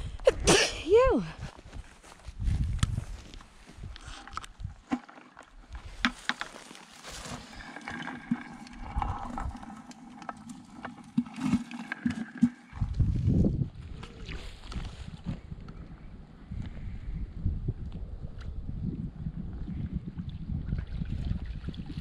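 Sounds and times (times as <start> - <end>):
wind rumbling on microphone: 0.0 - 4.9, 8.4 - 9.8, 12.7 - 22.0.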